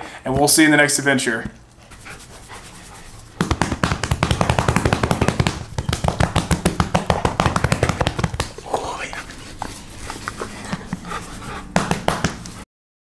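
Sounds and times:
hand patting dog's fur: 3.4s - 12.6s.

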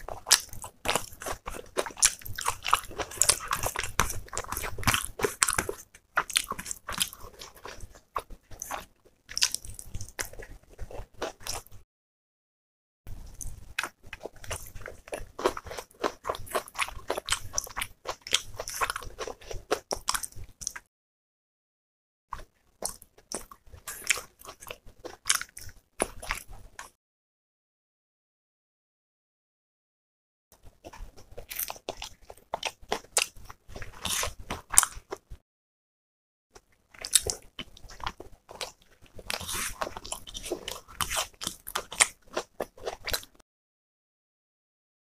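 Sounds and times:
person chewing crunchy food: 0.0s - 11.8s, 13.1s - 20.9s, 22.4s - 27.0s, 30.6s - 35.4s, 36.6s - 43.4s.

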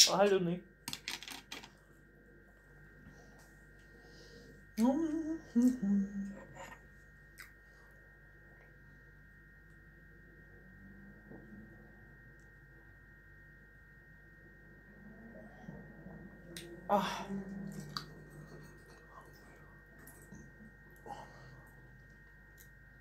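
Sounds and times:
faint high whine: 0.0s - 23.0s
woman humming: 4.8s - 6.8s, 16.5s - 18.3s.

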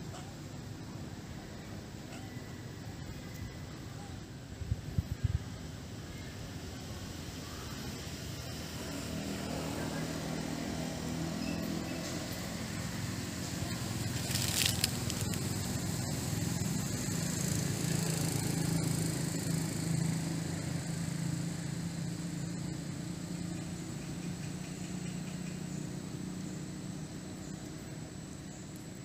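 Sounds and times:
distant motor hum: 5.8s - 29.0s
short rustle: 14.0s - 15.5s.

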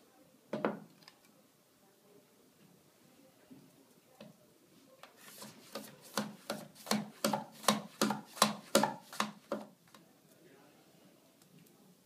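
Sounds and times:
potato slicing on a mandoline: 5.3s - 9.6s.

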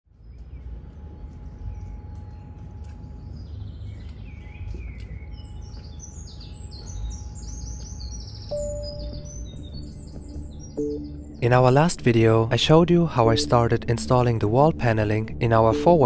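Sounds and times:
birds chirping and singing: 1.6s - 16.0s
steady low rumble: 8.5s - 16.0s
steady tone: 8.5s - 16.0s.

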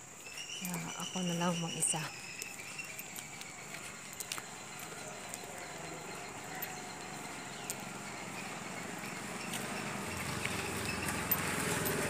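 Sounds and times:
footsteps on brick paving: 0.0s - 12.0s
outdoor background noise: 0.0s - 12.0s
small motorcycle engine: 6.3s - 12.0s.

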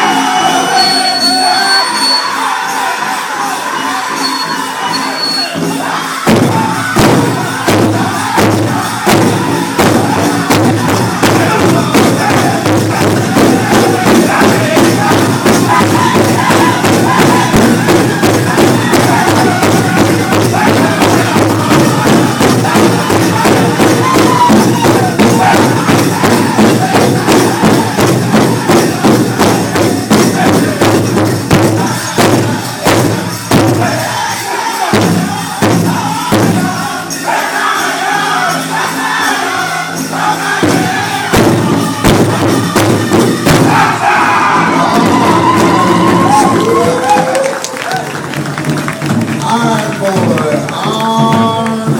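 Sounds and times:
men singing: 0.0s - 47.3s, 49.4s - 51.9s
crowd noise: 0.0s - 51.9s
big drum beating fast: 5.6s - 51.9s.

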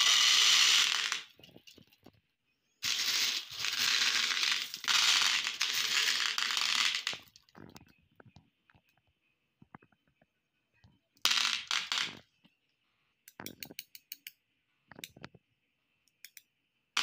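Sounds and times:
marbles rattling and clicking: 0.0s - 1.6s, 2.8s - 7.8s, 11.3s - 12.2s
glass marbles clattering on a plate: 0.0s - 1.8s, 2.8s - 7.8s, 11.3s - 12.2s.

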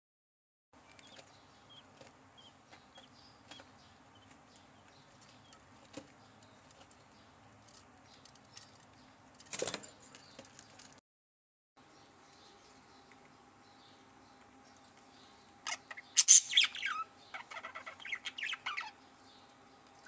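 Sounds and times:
budgerigars cheeping: 15.2s - 19.5s.

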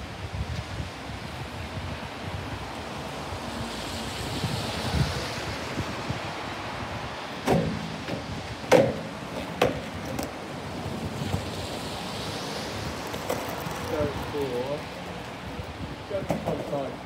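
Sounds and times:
skateboard wheels rolling on bricks: 7.3s - 17.0s
skateboard clacking on ground: 7.5s - 10.4s, 13.0s - 14.0s, 16.2s - 17.0s.

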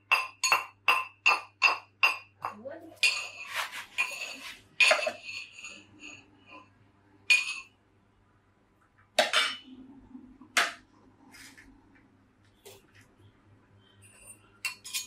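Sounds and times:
metal pestle clinking in mortar: 0.0s - 6.2s, 14.3s - 15.0s.

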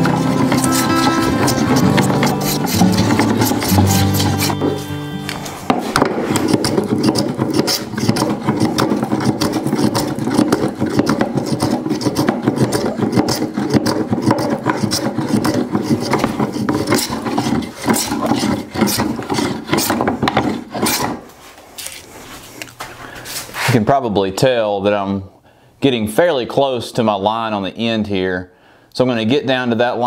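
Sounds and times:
hand rasp filing wood: 0.0s - 21.3s.

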